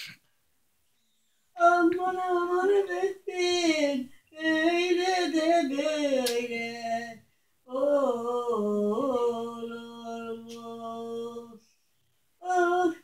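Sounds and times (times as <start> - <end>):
breath: 0.9 - 1.6
elderly woman singing: 1.6 - 11.6, 12.4 - 13.0.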